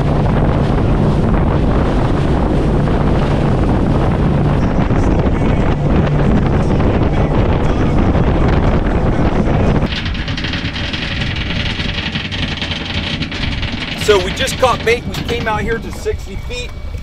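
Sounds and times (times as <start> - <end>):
boat engine drone: 0.0 - 17.0
water rushing off hull: 0.0 - 17.0
wind buffeting microphone: 0.0 - 17.0.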